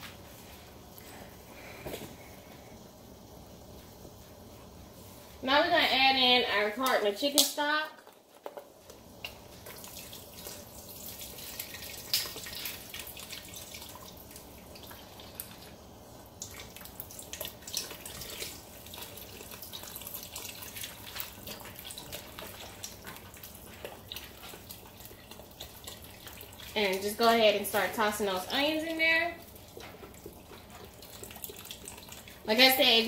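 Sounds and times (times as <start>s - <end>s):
small clicks and splashes: 6.8s - 15.7s, 16.4s - 27.4s, 29.4s - 32.6s
liquid pouring into a pot: 8.0s - 33.0s.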